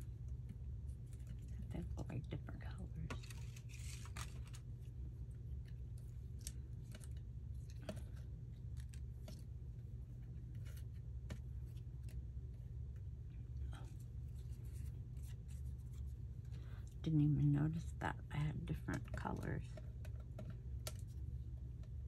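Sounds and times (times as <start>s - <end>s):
low steady hum: 0.0s - 22.0s
paper rustling: 3.1s - 4.6s.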